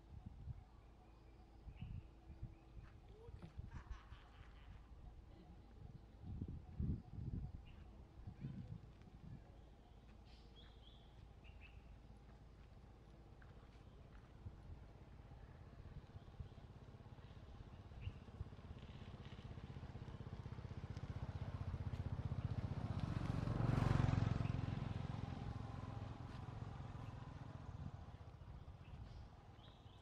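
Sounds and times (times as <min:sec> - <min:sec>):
vehicle engine passing by: 0:18.4 - 0:29.9.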